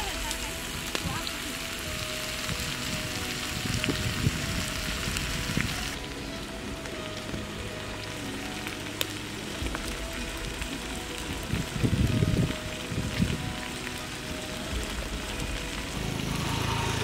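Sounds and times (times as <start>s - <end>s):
soft background music: 0.0s - 17.0s
wood fire crackling: 0.0s - 17.0s.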